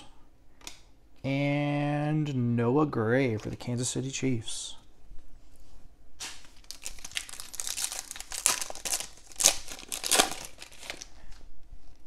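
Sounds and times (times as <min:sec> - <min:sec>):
foil wrapper crinkling: 0:06.2 - 0:11.4.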